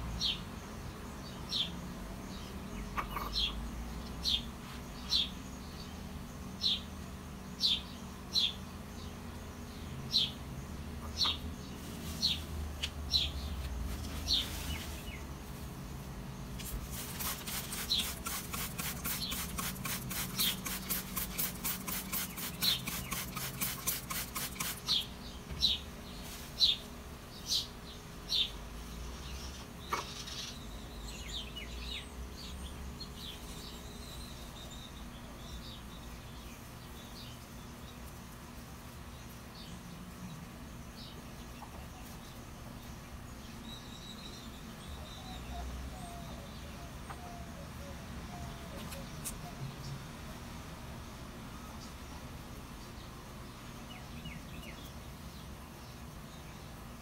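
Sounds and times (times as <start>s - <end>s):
bird chirping: 0.0s - 15.6s, 16.3s - 38.3s, 39.0s - 50.4s, 51.5s - 57.0s
spray bottle hissing: 16.6s - 25.0s.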